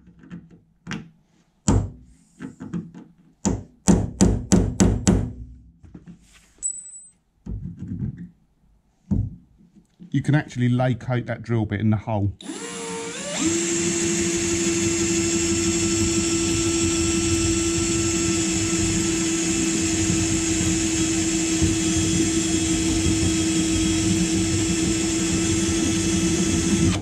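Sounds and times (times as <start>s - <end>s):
drill bit grinding through metal: 12.4s - 27.0s
electric drill motor whine: 12.4s - 27.0s.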